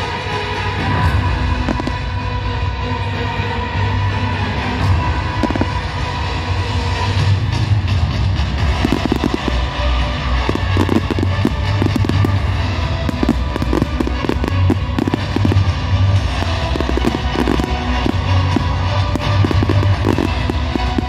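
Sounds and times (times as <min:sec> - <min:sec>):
loud music: 0:00.0 - 0:21.0
fireworks bursting and crackling: 0:01.6 - 0:02.2, 0:05.3 - 0:06.3, 0:08.4 - 0:21.0.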